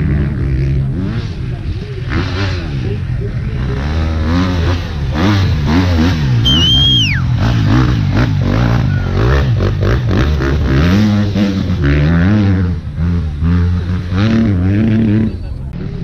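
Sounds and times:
dirt bike engine revving: 0.0s - 16.0s
high whistle: 6.4s - 7.3s.

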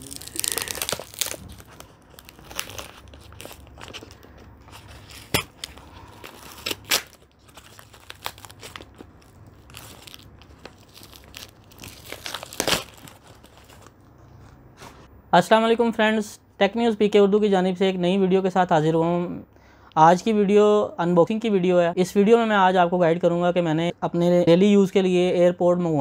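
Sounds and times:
sharp paper crackles: 0.0s - 14.0s
paper packaging crinkling and tearing: 0.0s - 14.1s.

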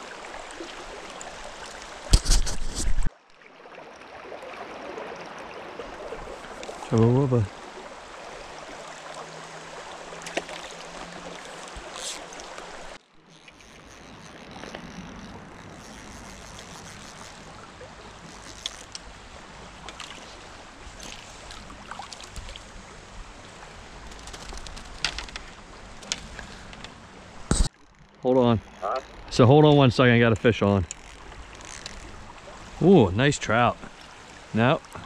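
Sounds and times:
river current rushing: 0.0s - 2.2s, 3.6s - 35.0s
small clicks and knocks: 24.1s - 26.9s.

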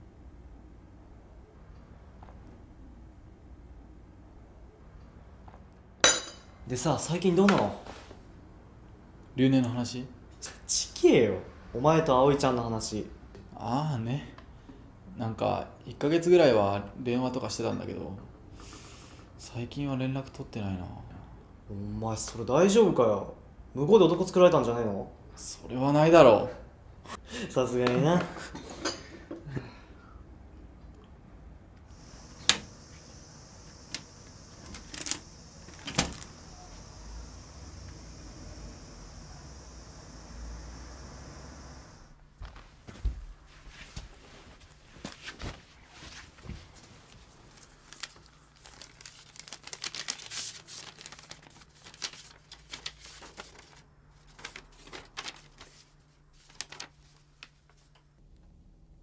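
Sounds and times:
steady high hiss: 31.8s - 42.4s
paper crinkling and rustling: 33.9s - 36.4s, 43.9s - 58.0s.

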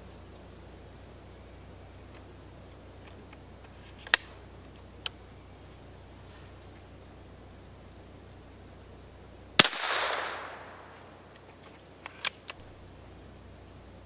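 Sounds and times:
rifle shot crack: 9.6s - 11.4s
rifle handling clicks: 9.6s - 12.6s.

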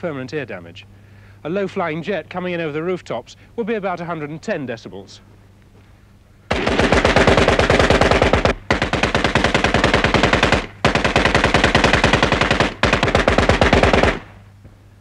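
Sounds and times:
heavy machine gun firing bursts: 6.5s - 14.4s.

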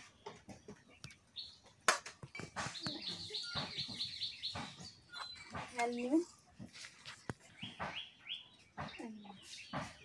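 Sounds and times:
small bird chirping: 0.8s - 6.1s, 7.2s - 10.0s.

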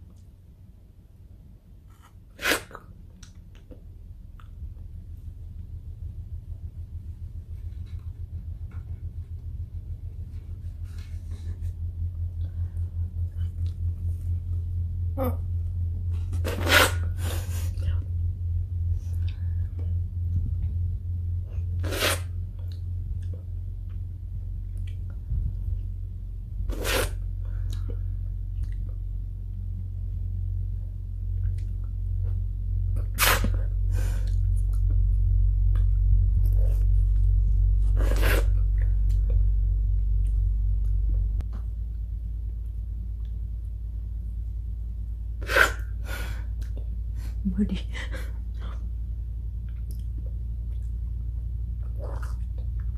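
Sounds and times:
low steady hum: 0.0s - 52.9s
breathy mouth noises eating: 51.8s - 52.8s.

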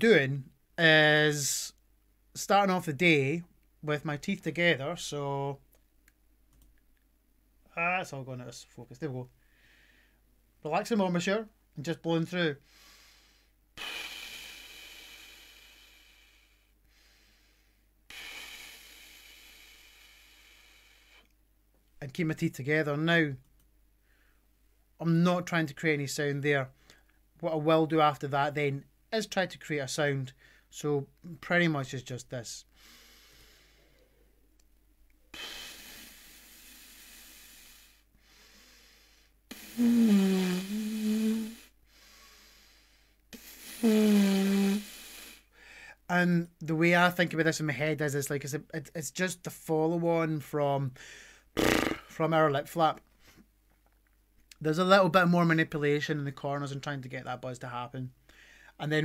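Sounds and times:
breath blown through lips: 12.7s - 21.3s, 35.3s - 45.6s.

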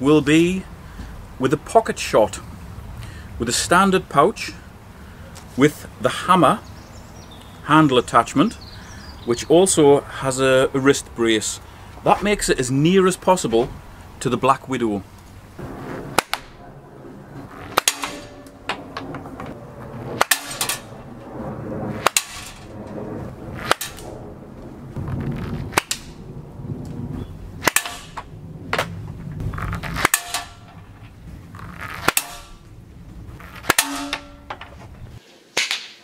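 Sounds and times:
slingshot shots hitting steel target: 17.8s - 18.4s, 20.2s - 20.9s, 22.0s - 22.7s, 23.6s - 24.0s, 27.6s - 28.2s, 30.0s - 30.6s, 32.0s - 32.6s, 33.6s - 34.5s.

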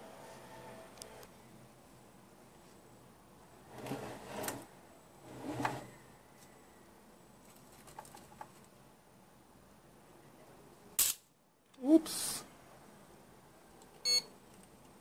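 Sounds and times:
rustling and scraping of wires: 7.4s - 8.7s.

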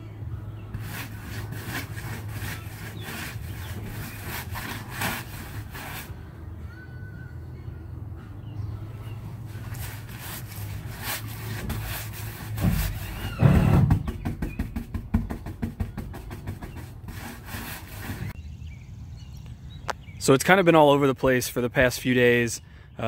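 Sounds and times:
paintbrush scrubbing on wood: 0.7s - 6.1s, 9.6s - 13.3s, 15.2s - 18.4s
low bump: 11.5s - 17.3s.

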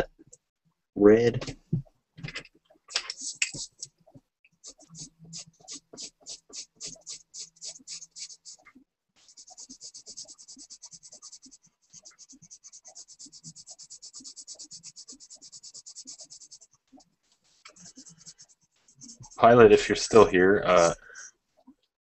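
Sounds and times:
pencil scratching on paper: 3.1s - 3.9s, 4.6s - 21.0s.

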